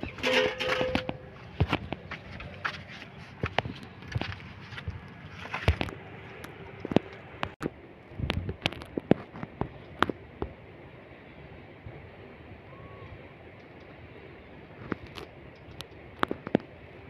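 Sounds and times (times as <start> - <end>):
footsteps on earth and stones: 0.0 - 7.6.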